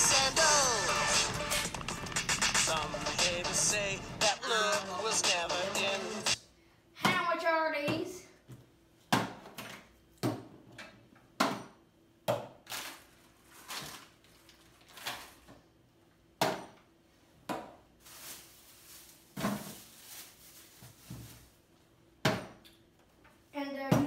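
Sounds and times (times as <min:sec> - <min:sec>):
rustling and shuffling: 0:18.0 - 0:21.9.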